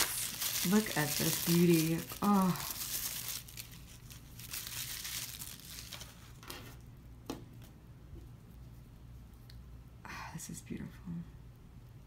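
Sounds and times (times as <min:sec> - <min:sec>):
bubble wrap crinkling: 0:00.0 - 0:06.9.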